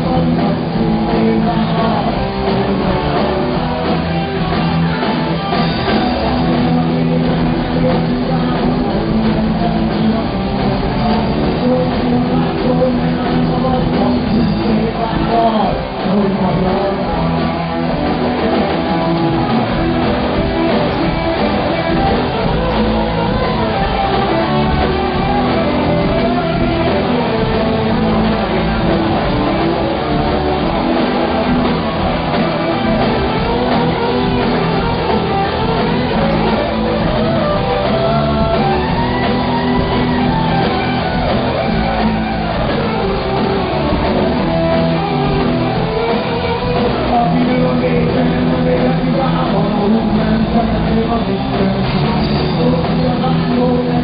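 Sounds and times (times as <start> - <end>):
live rock band playing: 0.0 - 54.0.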